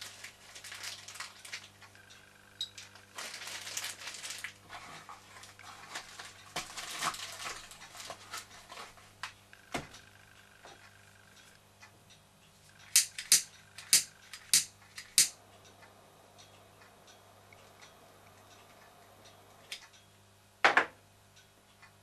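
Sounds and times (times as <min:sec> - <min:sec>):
gas lighter clicking: 0:12.9 - 0:15.3.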